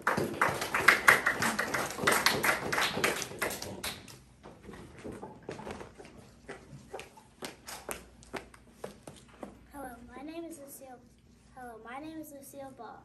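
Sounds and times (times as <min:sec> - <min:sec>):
small audience clapping: 0:00.0 - 0:04.3.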